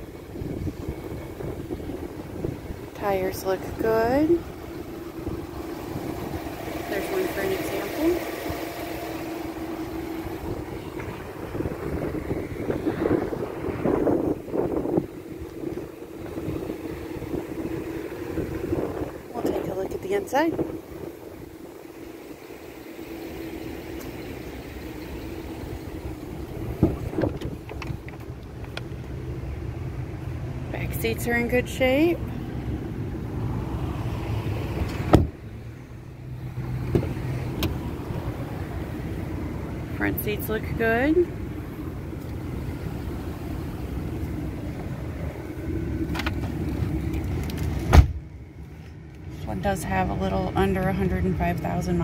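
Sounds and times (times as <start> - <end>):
car engine idling: 0.0 - 52.0
outdoor noise: 0.0 - 52.0
steady low hum: 0.0 - 52.0
car door shutting: 26.7 - 28.8, 34.8 - 35.4, 36.8 - 37.9, 46.1 - 48.3.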